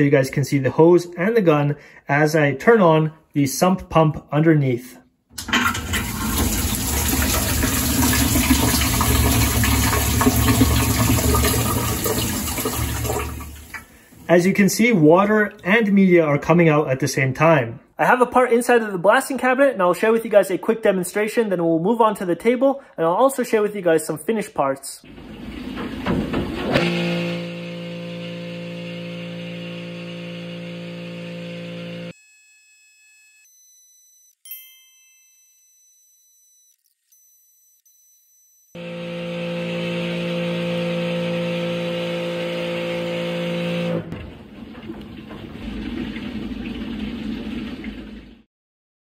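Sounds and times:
pressure washer pump humming: 0:05.4 - 0:14.5, 0:25.1 - 0:32.1, 0:38.8 - 0:48.4.

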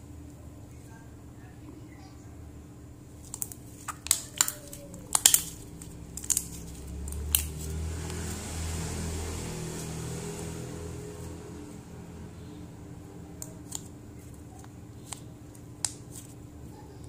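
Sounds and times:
steady low hum: 0:00.0 - 0:17.0
slime squeezed popping: 0:03.2 - 0:07.7.

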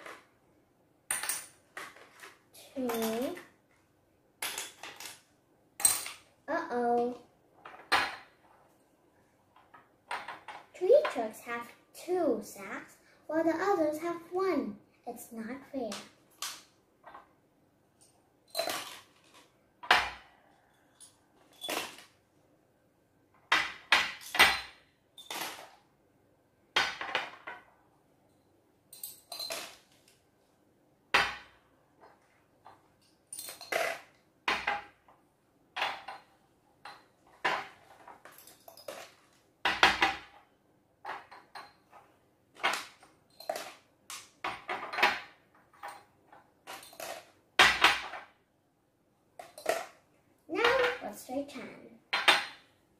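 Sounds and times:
glass jars clinking on table: 0:28.9 - 0:29.8.

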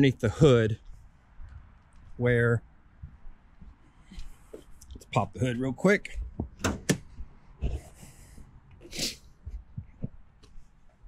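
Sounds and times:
short hissing rush: 0:08.9 - 0:09.3.

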